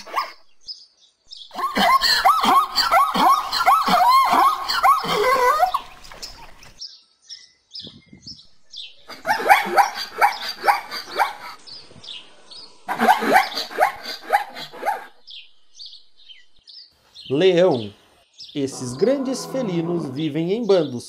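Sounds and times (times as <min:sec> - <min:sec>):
small birds chirping: 0:00.0 - 0:21.0
zebra yelping calls: 0:18.6 - 0:20.7.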